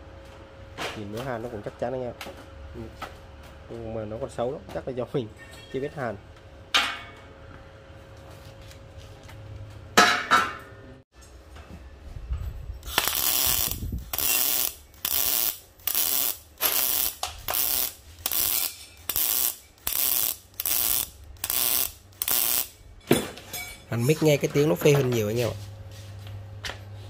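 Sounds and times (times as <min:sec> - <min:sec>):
welding arc crackling: 0:12.8 - 0:22.8.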